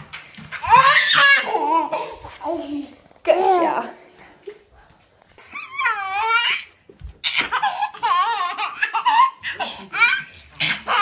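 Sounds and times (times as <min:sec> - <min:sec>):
baby giggling: 0:07.3 - 0:11.0.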